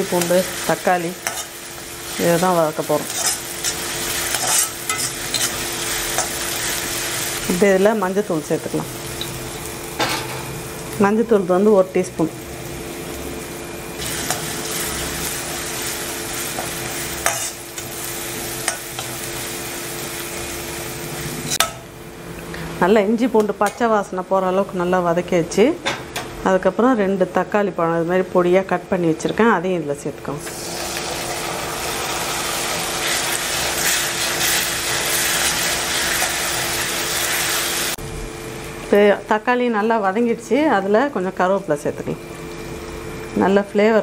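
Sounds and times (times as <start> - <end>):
onions sizzling in hot oil: 0.0 - 21.9, 30.4 - 40.4
metal ladle scraping pan: 3.1 - 5.6.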